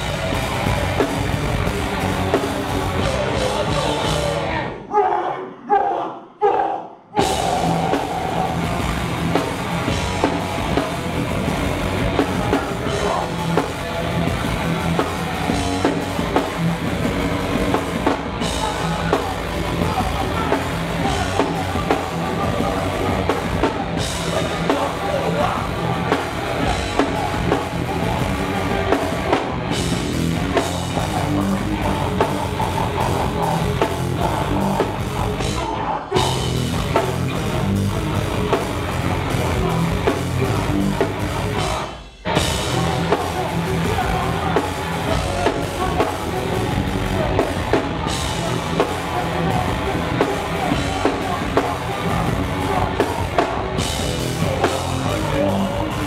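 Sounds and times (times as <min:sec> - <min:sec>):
punk band playing loud: 0:00.0 - 0:04.8, 0:07.2 - 0:56.0
vocalist shouting into microphone: 0:03.4 - 0:08.8.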